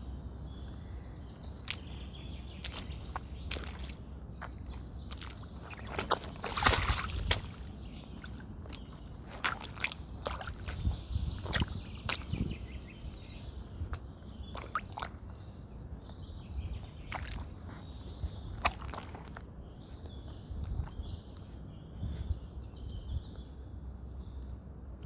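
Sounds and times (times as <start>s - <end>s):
sneakers splashing in muddy puddle: 2.5s - 12.8s, 13.9s - 15.3s, 17.0s - 18.0s, 18.6s - 19.5s.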